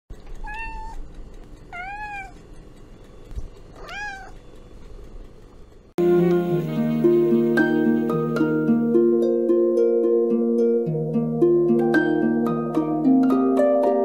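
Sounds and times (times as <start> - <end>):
cat meowing: 0.4 - 1.0, 1.7 - 2.4, 3.8 - 4.4
plucked-string music: 6.0 - 14.0.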